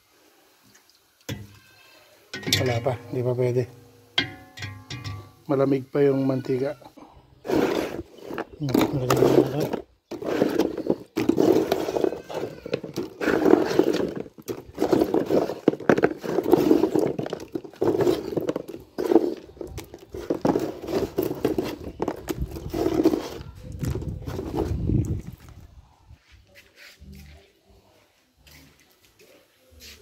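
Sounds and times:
pork skin clattering in wire strainer: 2.4s - 3.6s.

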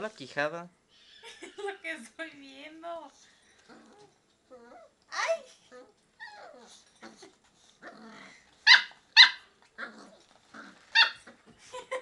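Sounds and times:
dog growling: 3.7s - 4.9s, 5.7s - 8.5s, 9.8s - 11.4s.

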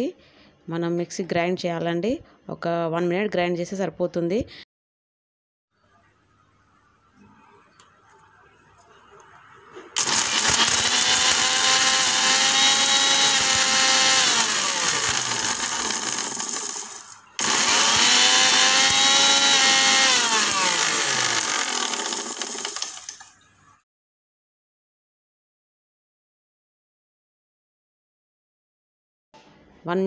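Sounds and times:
mixer grinder motor running: 10.0s - 23.3s
rock salt rattling in jar: 14.5s - 17.5s, 21.3s - 23.3s.

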